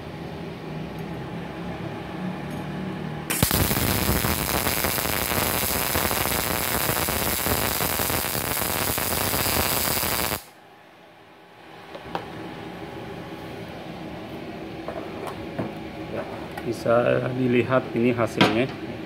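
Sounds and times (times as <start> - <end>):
steady hum: 3.2 - 19.0
welding arc crackling: 3.3 - 10.6.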